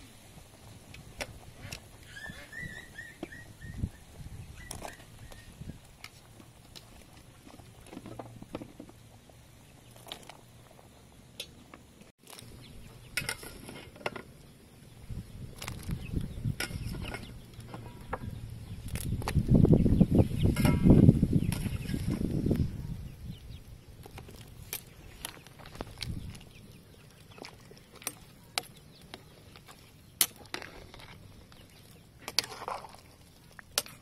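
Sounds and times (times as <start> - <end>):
pot of broth boiling: 0.0 - 2.1, 4.1 - 12.5.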